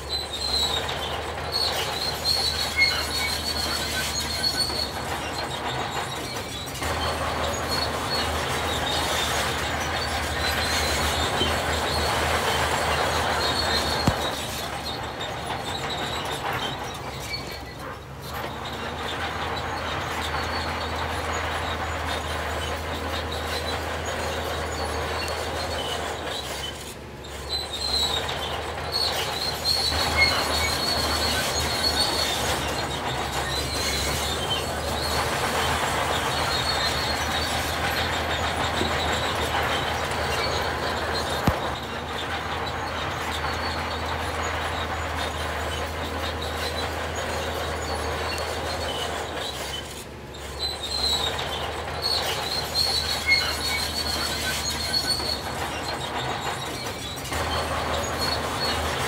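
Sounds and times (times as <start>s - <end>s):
engine low rumble: 0.0s - 59.0s
high metallic squeal: 0.0s - 59.0s.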